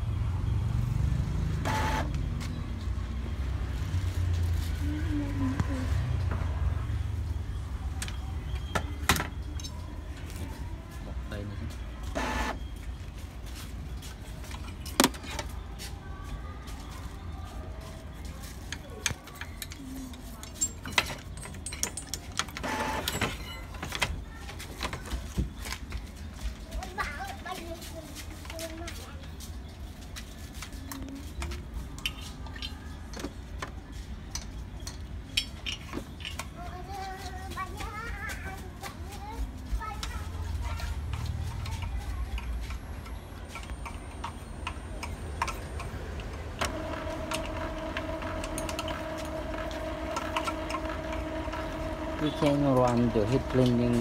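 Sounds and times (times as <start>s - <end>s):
printer whir: 1.6s - 2.2s, 12.1s - 12.6s, 22.6s - 23.1s, 46.2s - 54.0s
printer mechanical clicks: 45.4s - 53.8s.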